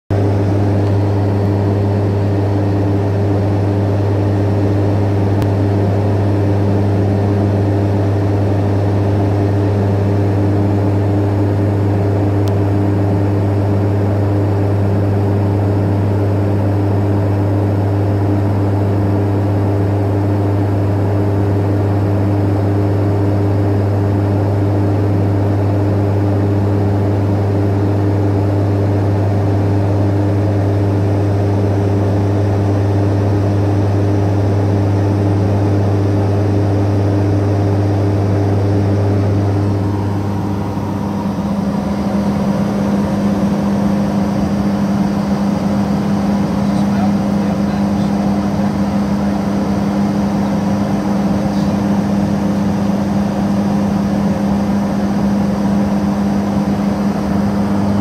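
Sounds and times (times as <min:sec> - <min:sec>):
turboprop cockpit drone: 0:00.1 - 0:58.0.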